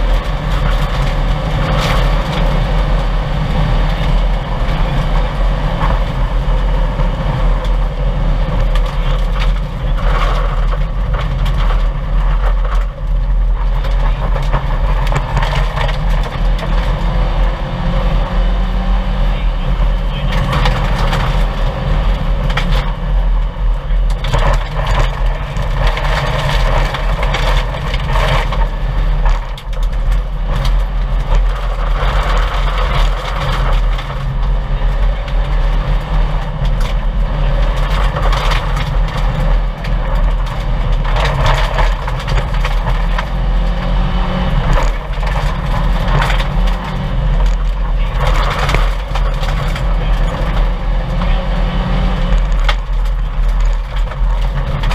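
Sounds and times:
car engine running hard: 0:00.0 - 0:54.9
gravel hitting car underbody: 0:44.5 - 0:51.2, 0:52.3 - 0:54.9.

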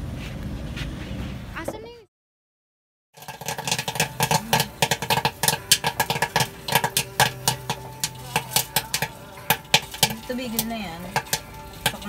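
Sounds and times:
popcorn popping: 0:03.2 - 0:12.0.

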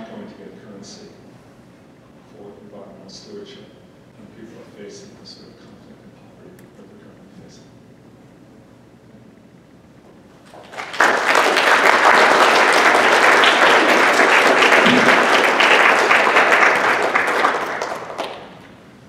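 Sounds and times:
audience applauding: 0:10.4 - 0:18.7.

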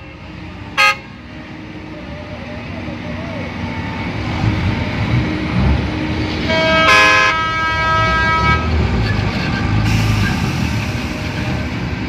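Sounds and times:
low diesel engine rumble: 0:00.0 - 0:12.0
machine horn: 0:00.8 - 0:01.0, 0:06.5 - 0:08.7.

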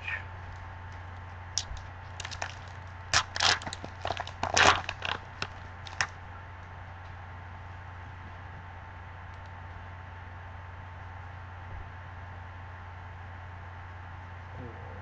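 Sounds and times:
faint steady hum: 0:00.0 - 0:15.0
foil wrapper crinkling and tearing: 0:01.6 - 0:06.2.

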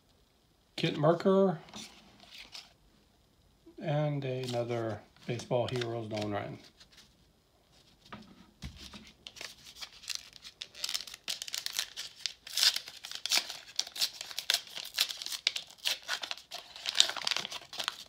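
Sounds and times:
foil wrapper crinkling and tearing: 0:08.8 - 0:18.0.

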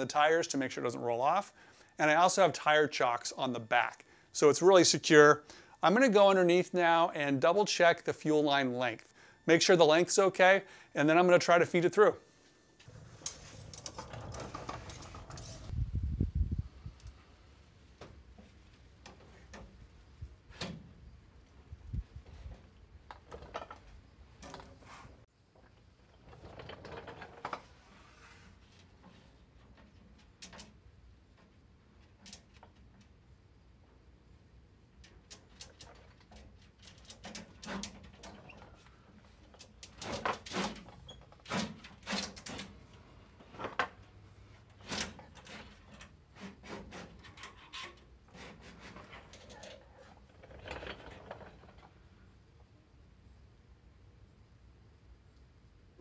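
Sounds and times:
metal line clicking and rattling: 0:22.2 - 0:24.8, 0:25.5 - 0:27.7, 0:28.8 - 0:33.2, 0:34.9 - 0:44.1, 0:47.0 - 0:52.2
metal tube knocking and scraping: 0:44.6 - 0:51.9.

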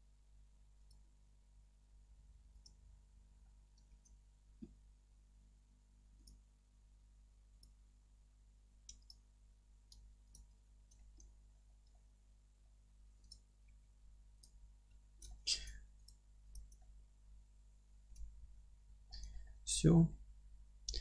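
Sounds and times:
computer mouse and keyboard clicks: 0:08.8 - 0:09.2.

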